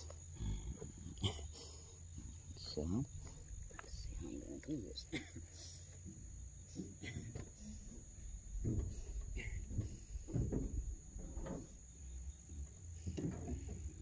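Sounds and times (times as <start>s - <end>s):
crickets trilling: 0.0s - 14.0s
low rumbles and soft knocks: 5.9s - 14.0s.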